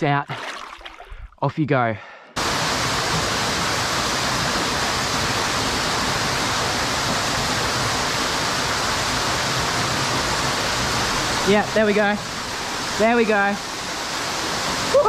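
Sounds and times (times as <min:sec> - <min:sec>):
small waterfall pouring into pool: 0:02.4 - 0:15.0.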